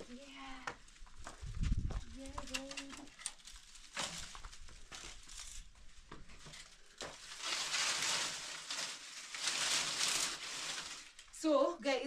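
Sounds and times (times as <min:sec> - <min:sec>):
dry branches rustling and crackling: 0:00.0 - 0:12.0
twigs snapping: 0:02.2 - 0:11.4.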